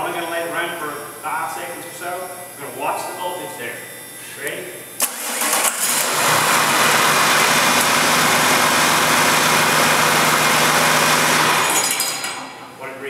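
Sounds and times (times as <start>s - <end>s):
diesel engine idling: 6.0s - 11.6s.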